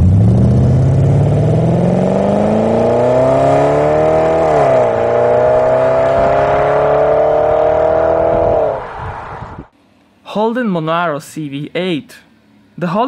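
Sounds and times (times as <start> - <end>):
car engine accelerating hard: 0.0 - 9.7.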